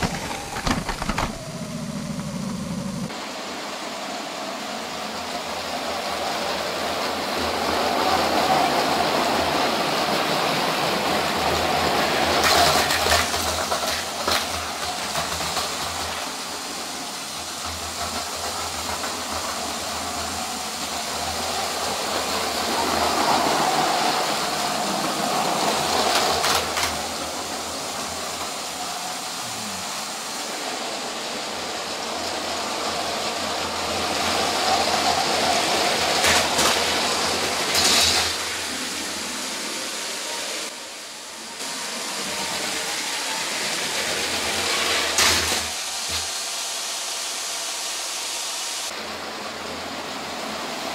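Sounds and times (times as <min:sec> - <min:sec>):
toy train motors whirring: 0:00.0 - 0:03.1, 0:05.5 - 0:48.4.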